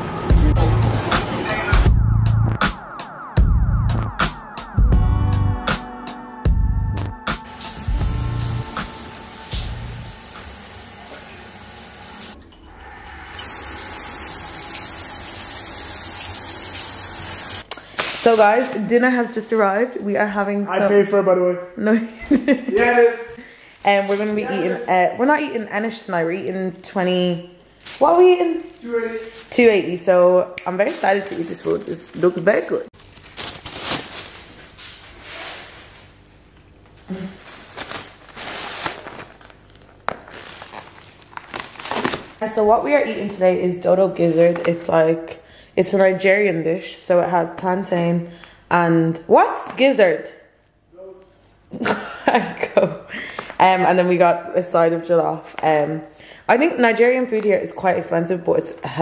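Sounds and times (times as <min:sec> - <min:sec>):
shower water spraying: 0:07.4 - 0:18.6
plastic bag rustling: 0:27.8 - 0:30.0, 0:30.7 - 0:42.8.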